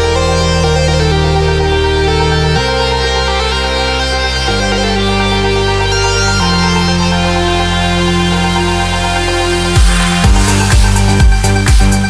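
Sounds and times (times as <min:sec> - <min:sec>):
held synth chords: 0:00.0 - 0:12.0
heavy kick drum: 0:09.8 - 0:12.0.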